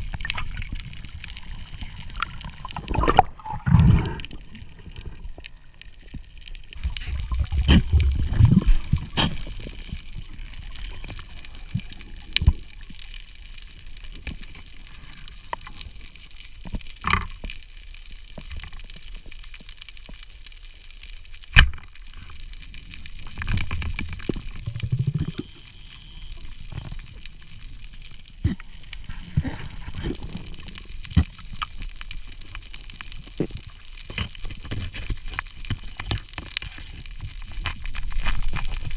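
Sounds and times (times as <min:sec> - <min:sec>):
underwater water gurgling: 0:00.0 - 0:38.9.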